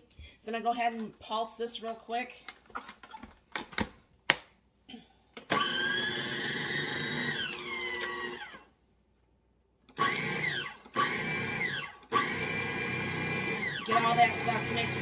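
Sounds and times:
food processor blade whirring: 5.4 - 8.7, 9.9 - 15.0.

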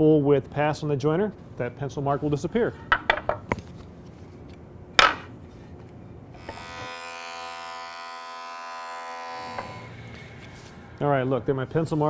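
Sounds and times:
jointer cutting board whine: 6.4 - 11.0.

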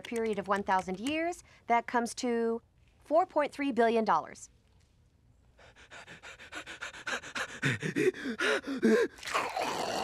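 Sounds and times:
man panting rapidly: 5.6 - 9.2.

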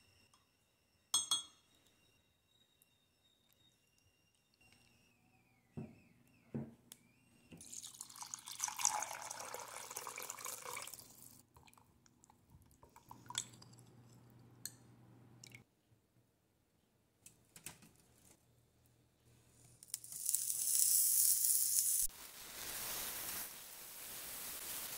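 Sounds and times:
spoon clinking on glass: 1.1 - 1.7.

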